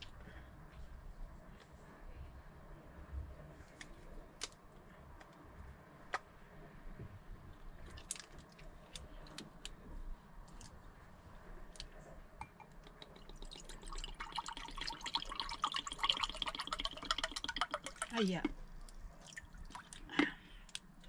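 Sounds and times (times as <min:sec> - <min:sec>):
liquid pouring into a mug: 0:12.4 - 0:20.4.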